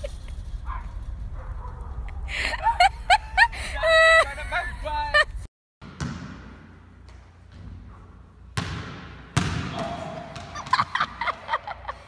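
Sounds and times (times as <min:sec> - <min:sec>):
ball thuds echoing in a gym: 0:05.8 - 0:11.5.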